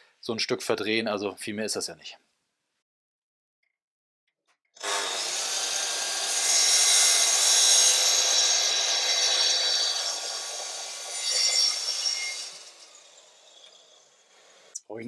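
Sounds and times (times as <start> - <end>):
mitre saw cutting wood: 4.8 - 14.8.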